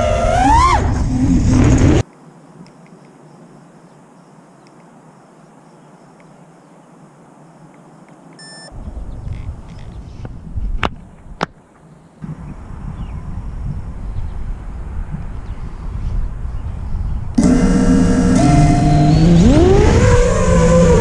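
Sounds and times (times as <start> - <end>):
short electronic beep: 8.4 - 8.8, 17.4 - 19.8
wind rumbling on microphone: 8.8 - 11.6, 12.2 - 17.5.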